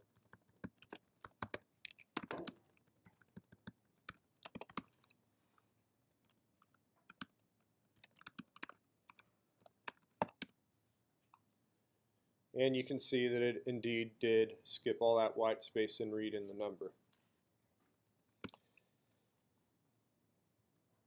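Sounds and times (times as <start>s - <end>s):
computer keyboard typing: 0.0s - 5.2s, 6.2s - 10.6s.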